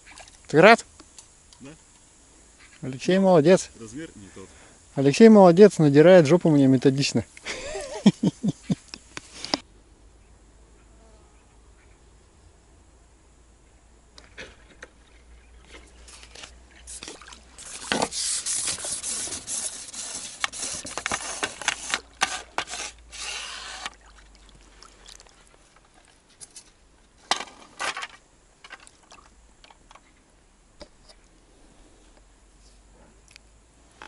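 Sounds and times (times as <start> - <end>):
fishing rod handling noise: 15.6 - 24.0.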